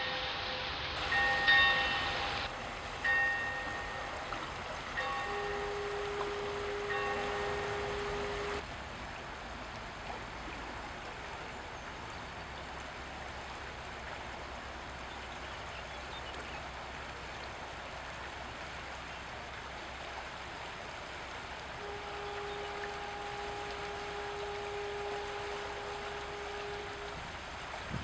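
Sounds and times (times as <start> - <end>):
fog horn blast: 0.0 - 8.6, 21.8 - 28.0
rushing water-like hiss: 0.0 - 28.0.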